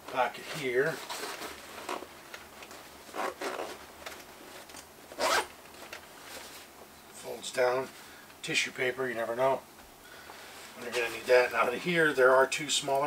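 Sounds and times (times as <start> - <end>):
backpack zipper being pulled open: 3.1 - 3.8, 5.2 - 5.5.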